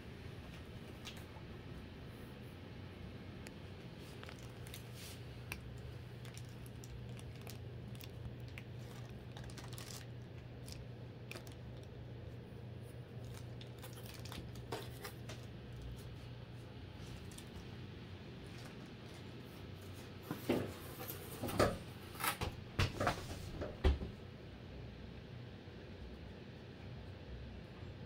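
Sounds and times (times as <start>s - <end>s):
steady low hum: 0.0s - 28.0s
rustling and crinkling: 3.4s - 23.7s.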